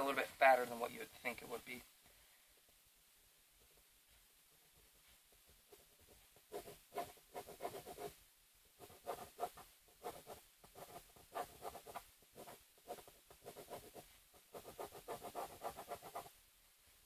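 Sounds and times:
pen scratching on cardboard: 5.7s - 8.2s, 8.8s - 16.3s.

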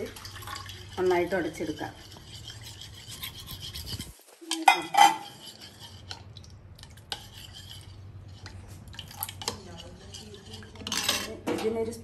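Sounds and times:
spoon scraping and clinking plate: 1.5s - 6.1s, 9.4s - 11.4s.

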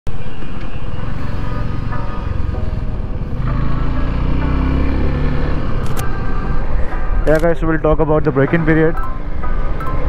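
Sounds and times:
motorcycle engine running: 1.0s - 7.1s.

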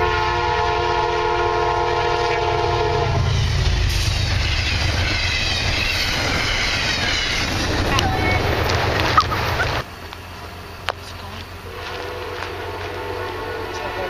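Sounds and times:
locomotive horn: 0.0s - 9.8s, 11.6s - 14.0s
train cars rumbling past: 0.0s - 14.0s.

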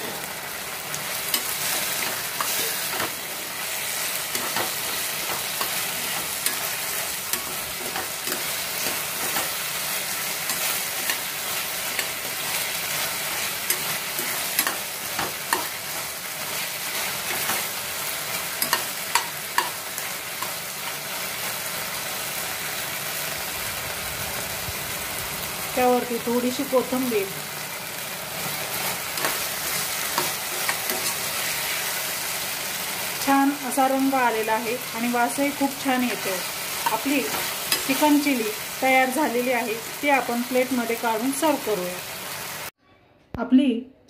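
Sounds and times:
food sizzling in a pan: 0.0s - 42.8s
spatula scraping a pan: 1.3s - 17.7s, 28.4s - 32.0s.

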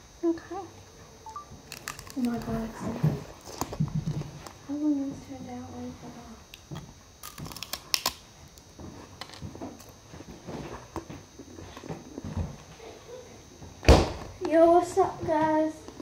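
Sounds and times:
ice crunching against glass and teeth: 1.7s - 2.3s, 7.2s - 8.2s.

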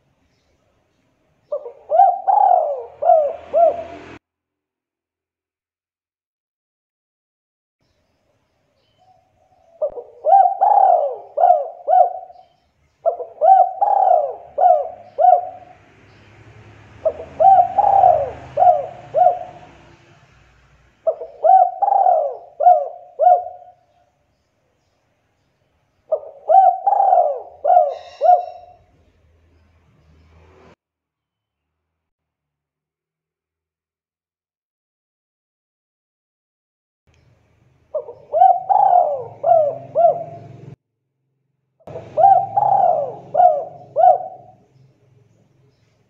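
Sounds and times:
dove cooing: 1.5s - 4.2s, 9.4s - 15.8s, 17.0s - 20.0s, 21.0s - 24.0s, 26.1s - 28.9s, 37.9s - 40.8s, 41.9s - 44.6s.

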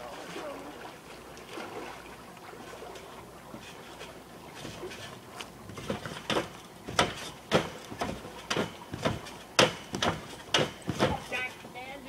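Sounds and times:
trampoline springs squeaking and thumping: 3.5s - 11.6s.

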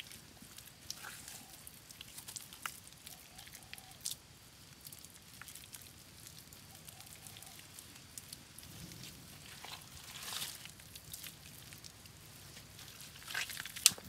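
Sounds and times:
wet mud clicks and pats: 0.0s - 8.4s, 9.0s - 14.0s.

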